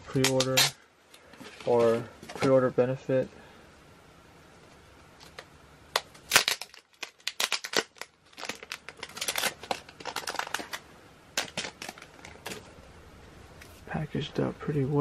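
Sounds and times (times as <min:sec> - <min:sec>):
packaging crinkling and crackling: 0:05.2 - 0:12.8.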